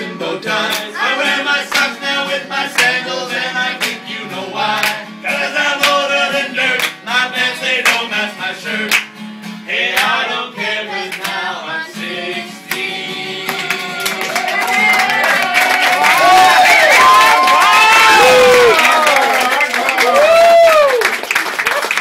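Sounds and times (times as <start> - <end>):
men singing: 0.0 - 9.1, 9.7 - 14.6
strummed acoustic guitar: 0.0 - 15.3.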